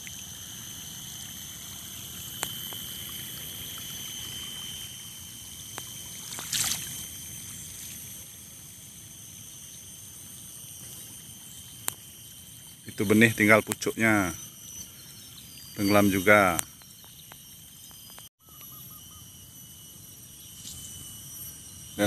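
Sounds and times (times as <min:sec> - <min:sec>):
floodwater trickling and running: 0:00.0 - 0:08.7
constant high-pitched whine: 0:00.0 - 0:22.0.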